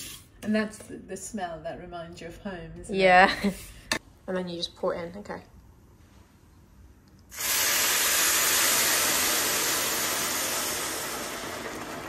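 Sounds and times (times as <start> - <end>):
milk sizzling in hot fat: 7.3 - 12.0.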